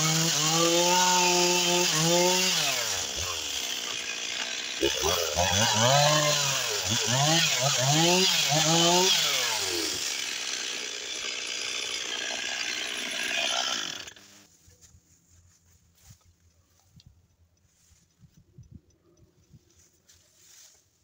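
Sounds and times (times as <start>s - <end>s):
chainsaw revving: 0.0s - 14.5s.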